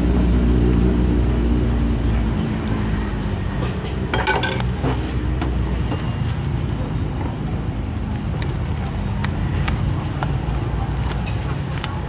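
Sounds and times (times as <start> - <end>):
dishes or glass clinking: 4.1 - 4.8.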